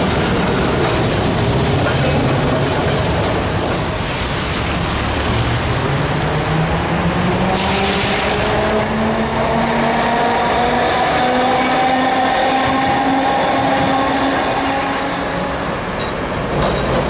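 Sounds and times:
street traffic: 0.0s - 17.0s
high squeal: 7.9s - 9.5s.

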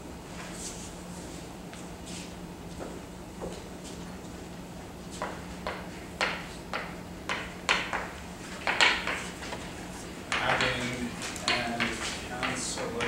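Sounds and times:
chalk tapping and scraping: 5.1s - 13.0s.

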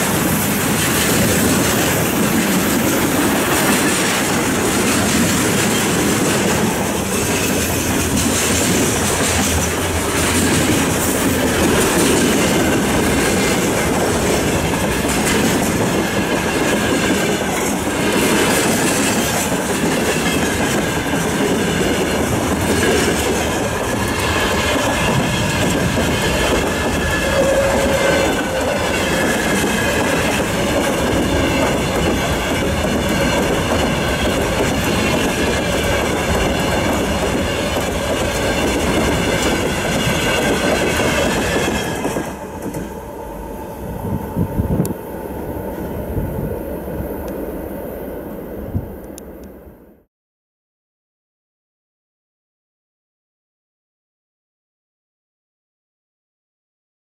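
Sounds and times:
train wheels rumbling on rail: 0.0s - 49.6s
faint wavering wheel squeal: 26.7s - 29.4s.

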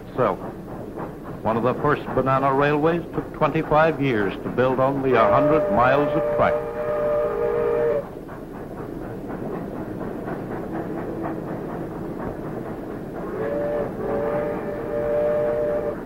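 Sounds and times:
steam train rumbling: 0.0s - 16.0s
wheels clattering over rail joints: 0.2s - 6.3s
steam whistle chord: 5.1s - 8.0s, 13.3s - 16.0s.

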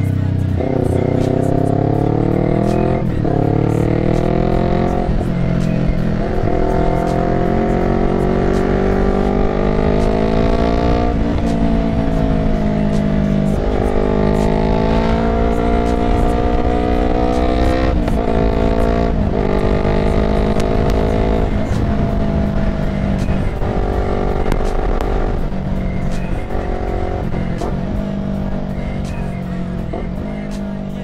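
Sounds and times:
motorcycle engine revving: 0.0s - 31.0s
low wind rumble: 16.2s - 30.3s.

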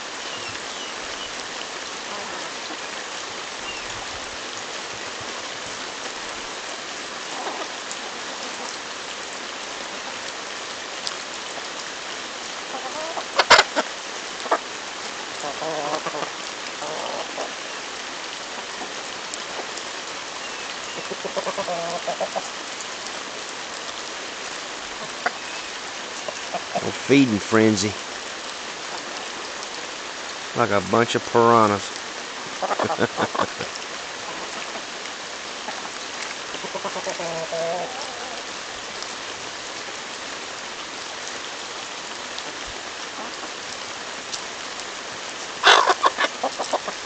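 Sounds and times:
chickens clucking: 12.7s - 13.8s, 15.4s - 17.6s, 21.0s - 22.5s, 32.5s - 34.8s, 36.5s - 38.3s, 45.6s - 47.0s
steady hiss: 22.1s - 36.7s.

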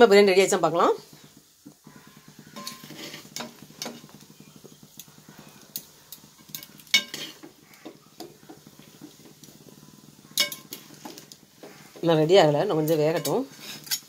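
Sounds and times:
metal ladle stirring in a pot: 1.8s - 5.6s, 6.3s - 7.8s, 12.9s - 14.0s.

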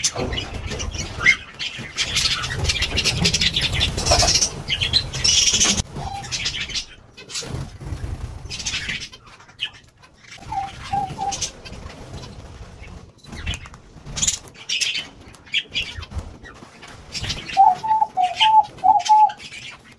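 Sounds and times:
wing flutters: 0.0s - 19.9s
dove cooing: 10.4s - 11.6s, 17.6s - 19.4s.

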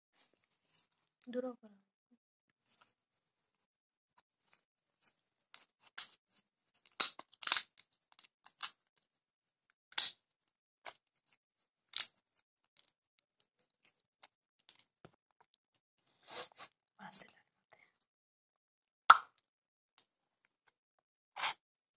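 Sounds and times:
dry pod shells cracking: 6.8s - 8.8s, 9.9s - 10.2s.

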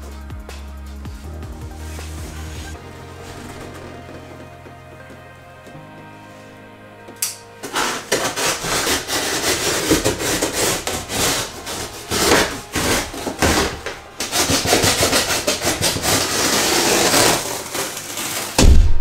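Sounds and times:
cardboard box scraping: 1.8s - 5.1s, 7.6s - 18.6s.

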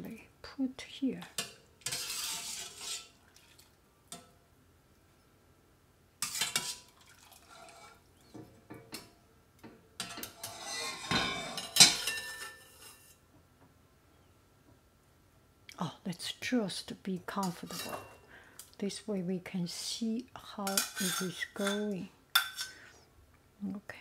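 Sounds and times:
skimmer scraping in saucepan: 1.8s - 3.3s, 6.2s - 8.1s, 10.0s - 13.2s, 17.4s - 18.2s, 20.6s - 22.9s.

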